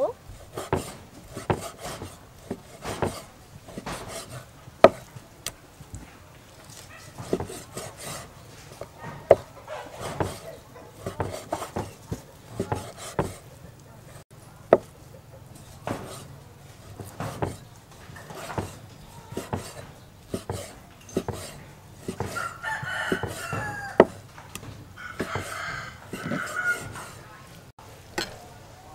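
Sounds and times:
cleaver knocking on wooden block: 0.6s - 5.1s, 7.2s - 8.2s, 8.8s - 13.4s, 14.7s - 14.9s, 16.9s - 17.6s, 18.2s - 18.8s, 19.4s - 27.2s
rooster crowing: 22.2s - 24.3s, 25.0s - 27.4s.

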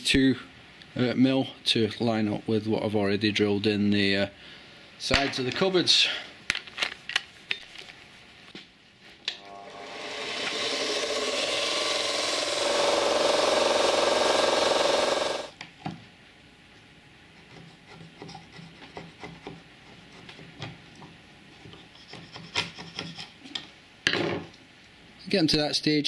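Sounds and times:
belt sander motor running: 9.4s - 15.5s
file scraping plywood: 9.8s - 15.5s.

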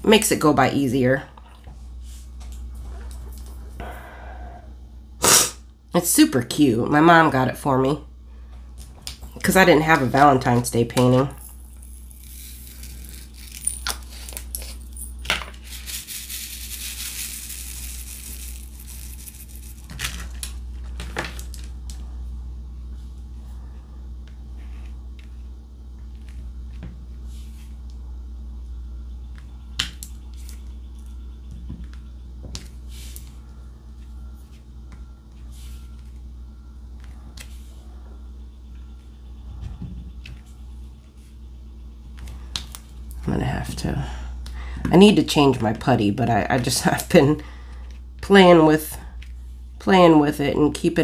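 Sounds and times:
steady low hum: 0.0s - 51.0s
plastic beads rattling in a tray: 11.8s - 20.4s.

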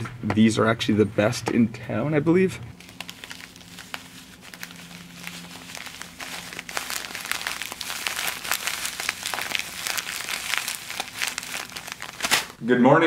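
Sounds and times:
pouch crinkling: 2.8s - 12.6s.

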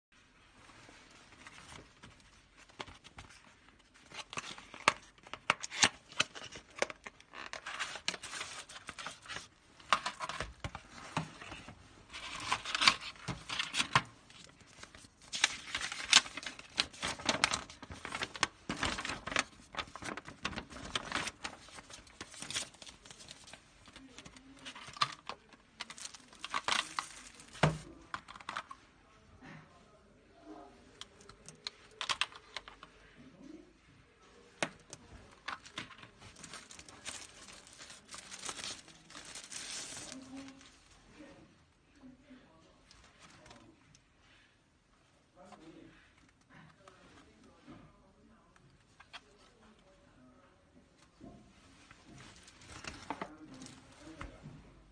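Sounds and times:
cardboard and paper rustling: 0.7s - 28.8s, 34.3s - 41.0s, 51.2s - 54.9s.

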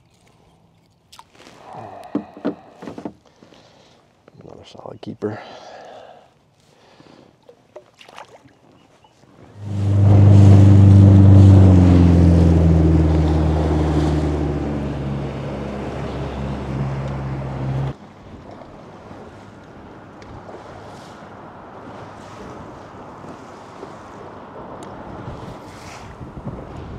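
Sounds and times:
water lapping: 6.6s - 26.9s
outboard engine running: 9.4s - 25.5s
water rushing past hull: 9.4s - 26.9s
wind on microphone: 9.5s - 18.0s, 24.6s - 26.9s.

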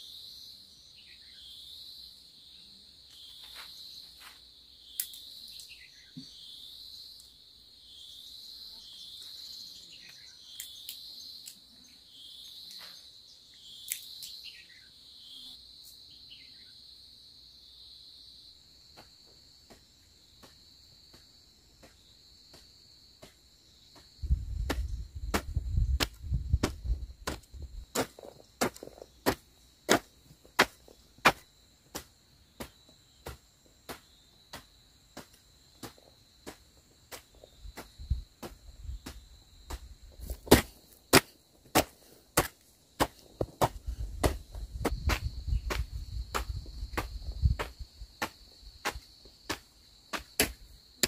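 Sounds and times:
crickets chirring: 0.0s - 51.0s
hoe chopping into soil: 24.6s - 50.7s.

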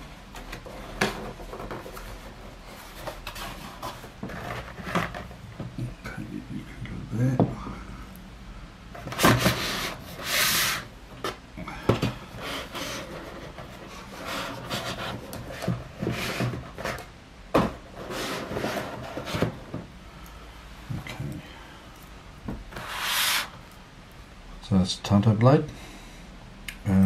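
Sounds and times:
cardboard box sliding on wood: 9.0s - 10.9s, 12.4s - 19.7s, 22.7s - 23.5s.

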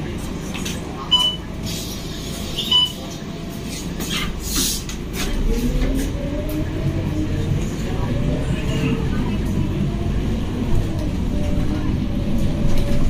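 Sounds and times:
bus engine and road rumble: 0.0s - 13.0s
short electronic beep: 1.1s - 1.4s, 2.6s - 3.0s.

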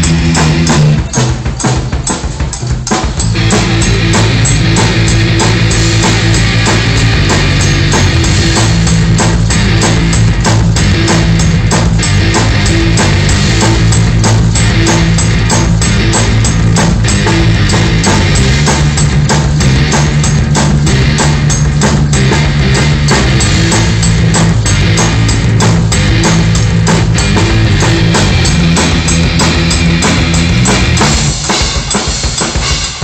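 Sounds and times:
drum beat: 0.0s - 33.0s
electric guitar notes: 3.3s - 31.3s.

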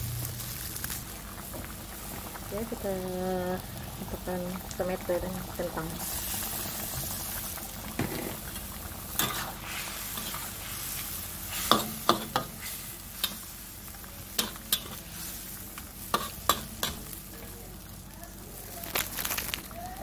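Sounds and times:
curry sizzling: 0.0s - 20.0s
metal spatula scraping a wok: 9.1s - 13.5s, 14.4s - 15.4s.

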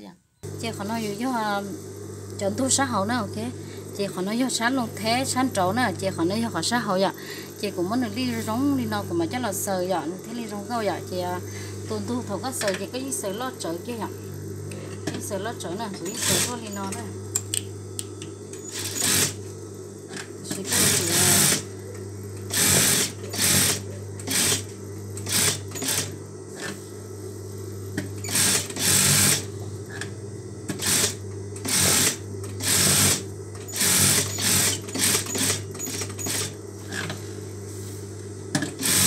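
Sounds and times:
steady low hum: 0.0s - 39.0s
sewing machine stitching: 16.0s - 16.8s, 18.6s - 19.4s, 22.5s - 26.1s, 28.2s - 29.5s, 30.8s - 36.5s, 38.8s - 39.0s.

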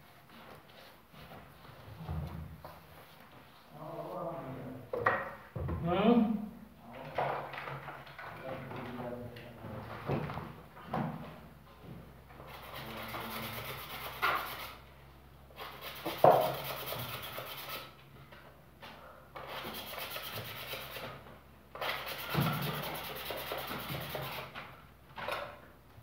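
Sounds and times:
plaster scraping and rubbing: 15.6s - 17.9s, 19.5s - 21.2s, 21.9s - 24.5s.

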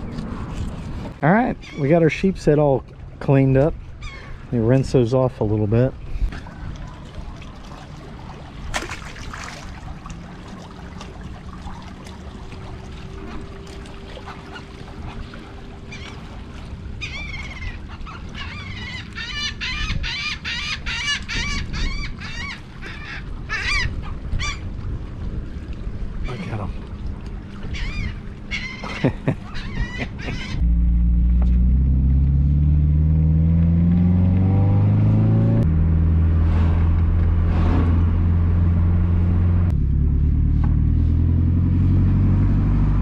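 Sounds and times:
gulls calling: 1.4s - 5.9s, 8.8s - 24.7s, 26.1s - 30.8s.

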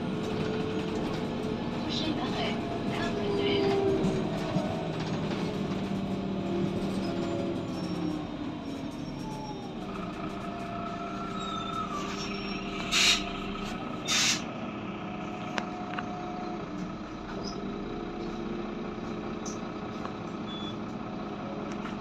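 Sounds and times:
bus engine running: 0.0s - 22.0s
compressed air hisses: 14.1s - 14.4s.

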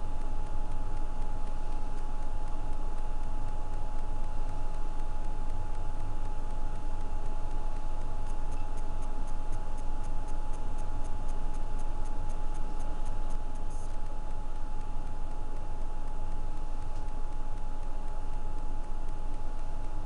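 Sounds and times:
machine hum: 0.0s - 20.0s
rapid light ticking: 0.0s - 20.0s.

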